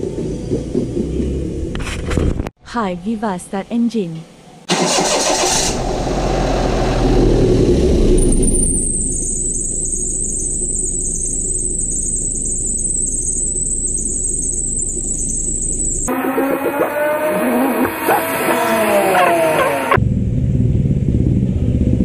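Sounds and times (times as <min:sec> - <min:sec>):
small car engine idling: 0:04.7 - 0:20.0
thin high whine: 0:08.1 - 0:20.0.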